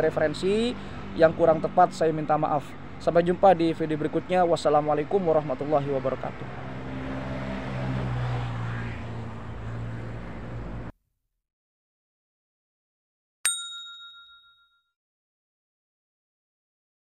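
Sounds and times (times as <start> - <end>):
notification bell ding: 13.5 - 14.9.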